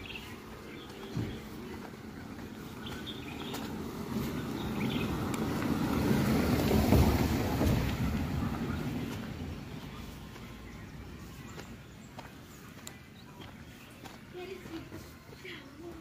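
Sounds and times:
vehicle driving past on dirt road: 2.2s - 11.3s.

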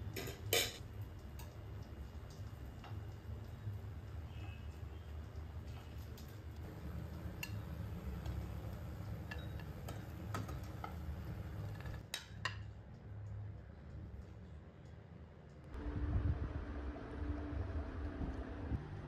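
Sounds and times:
low steady hum: 0.0s - 19.0s
metal tongs clinking on pan: 0.2s - 0.8s.

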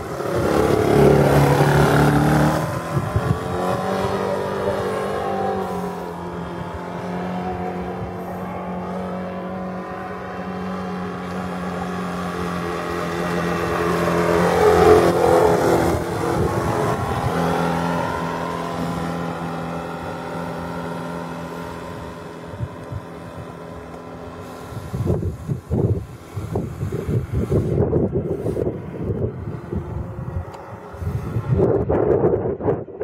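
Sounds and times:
model boat engine running: 0.0s - 27.6s.

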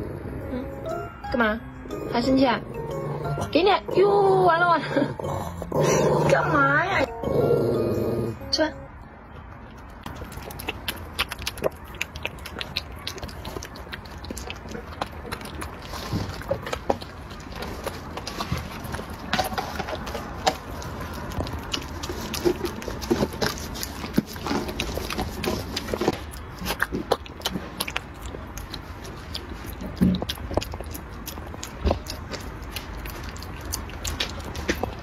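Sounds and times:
puppy chewing wet food: 9.5s - 35.0s.

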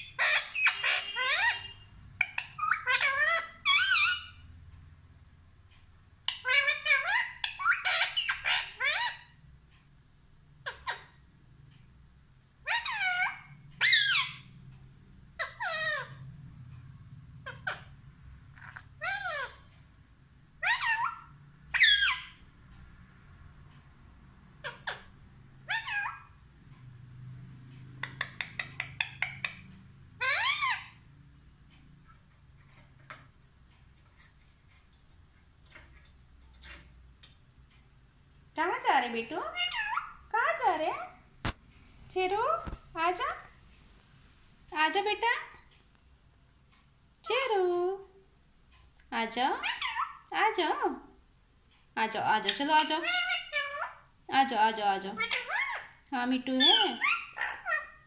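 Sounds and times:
parakeet calling: 0.0s - 4.6s, 6.2s - 9.5s, 12.6s - 14.7s, 15.3s - 16.3s, 17.4s - 19.7s, 20.6s - 22.5s, 24.5s - 26.4s, 27.9s - 37.4s, 38.7s - 41.3s, 49.6s - 50.3s, 52.1s - 54.2s, 55.0s - 58.0s.

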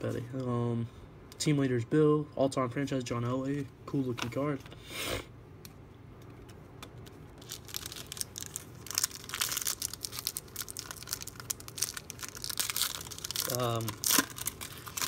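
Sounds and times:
foil wrapper crinkling: 7.4s - 15.0s.

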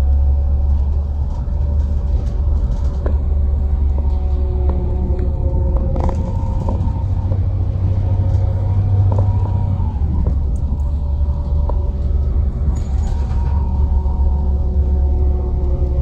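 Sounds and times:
light clicks and rattles: 0.0s - 9.6s
steady whining tones: 0.0s - 16.0s
vehicle engine rumble: 0.0s - 16.0s.

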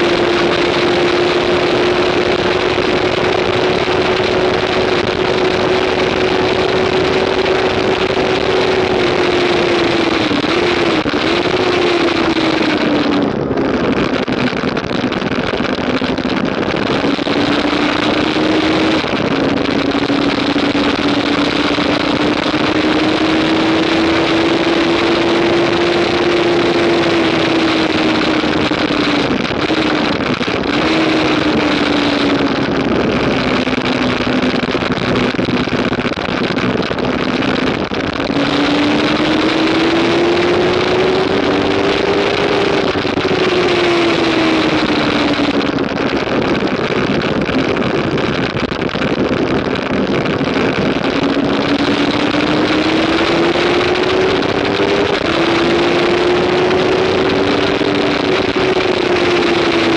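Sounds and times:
motorcycle engine running hard: 0.0s - 59.9s
wind rush over microphone: 0.0s - 59.9s.

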